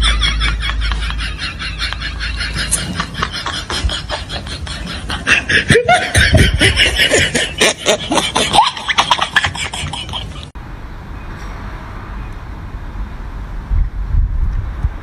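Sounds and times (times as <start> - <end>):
falling laugh-like vocal swoops: 0.0 - 10.5.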